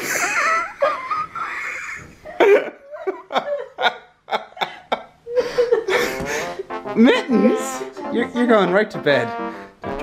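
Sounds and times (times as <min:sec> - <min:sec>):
person laughing: 0:00.0 - 0:07.9.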